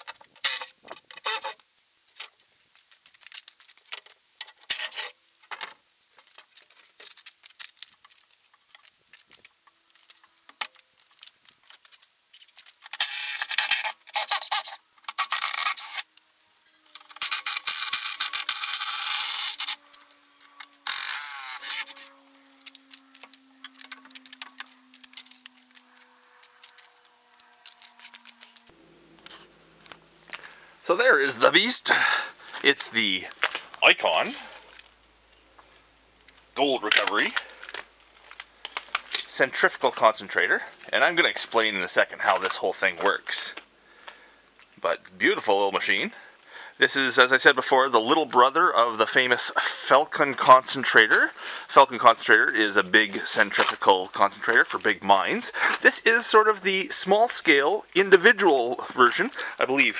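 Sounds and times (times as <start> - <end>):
wood scraping: 2.2 - 30.6.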